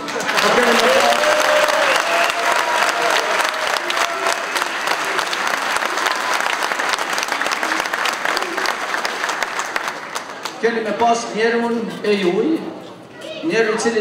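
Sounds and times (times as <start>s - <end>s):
audience applauding: 0.0s - 10.6s.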